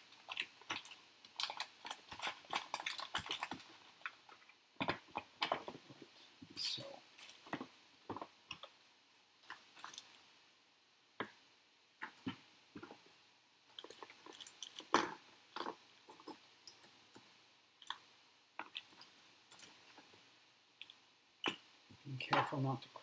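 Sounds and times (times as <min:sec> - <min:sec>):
plastic bags crinkling: 0:00.0 - 0:04.5
small parts tapping on plastic: 0:00.1 - 0:06.0.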